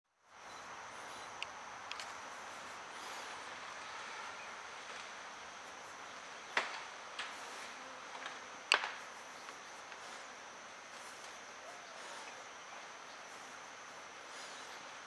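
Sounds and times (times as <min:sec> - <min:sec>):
high insect drone: 0:00.1 - 0:15.0
bamboo stems snapping: 0:08.2 - 0:09.0.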